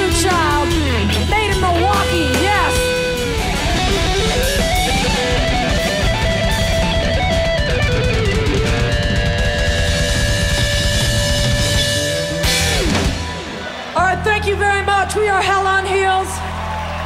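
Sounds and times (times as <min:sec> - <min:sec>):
electric guitar lead: 0:00.0 - 0:14.0
bass guitar: 0:00.0 - 0:17.0
drums: 0:00.0 - 0:17.0.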